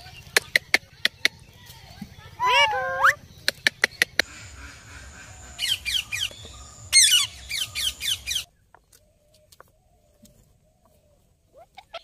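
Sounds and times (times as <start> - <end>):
parrot squawking: 2.4 - 3.2.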